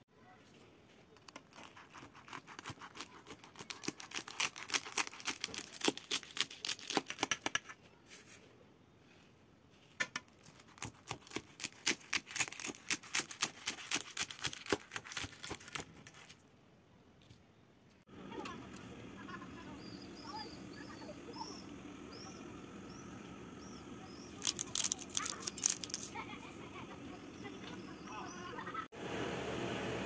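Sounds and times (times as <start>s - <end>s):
knife cutting crisp pastry: 1.2s - 7.8s, 10.2s - 16.4s, 24.4s - 26.1s.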